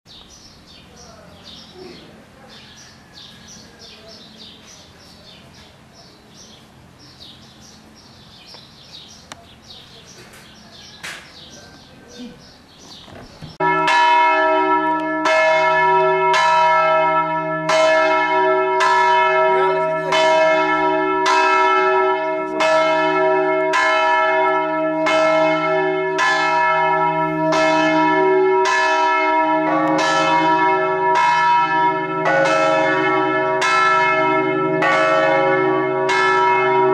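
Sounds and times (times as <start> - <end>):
faint birds chirping: 0.1 - 13.6
church bells ringing: 13.5 - 36.9.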